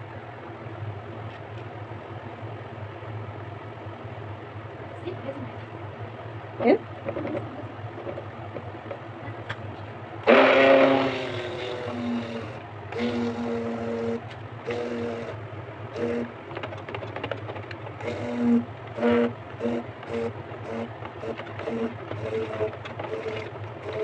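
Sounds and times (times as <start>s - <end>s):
stick blender motor humming: 10.2s - 24.0s.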